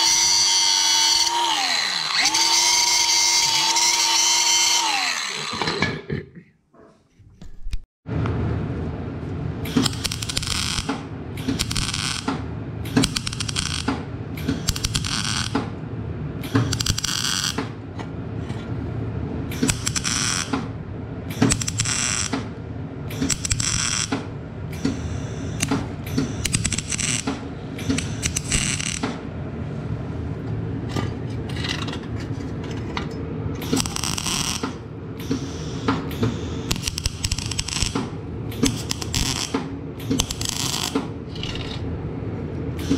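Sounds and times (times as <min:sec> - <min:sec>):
welding arc crackling: 0:09.8 - 0:10.9, 0:11.6 - 0:12.3, 0:13.1 - 0:13.9, 0:14.5 - 0:15.6, 0:19.7 - 0:20.5, 0:21.5 - 0:22.3, 0:26.4 - 0:27.3, 0:27.9 - 0:29.0, 0:33.6 - 0:34.7, 0:36.5 - 0:38.0, 0:38.6 - 0:39.6, 0:40.2 - 0:41.0.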